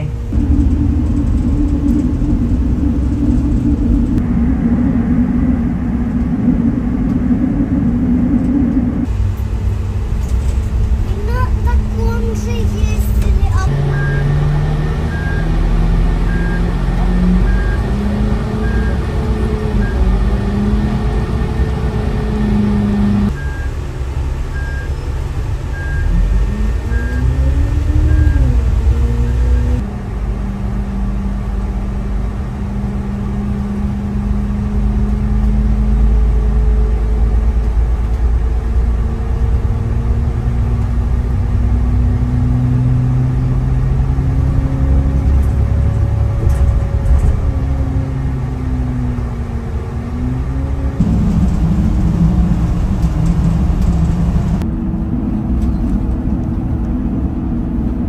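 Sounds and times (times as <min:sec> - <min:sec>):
bus engine: 0:00.0 - 0:58.0
high beeps: 0:13.6 - 0:14.4.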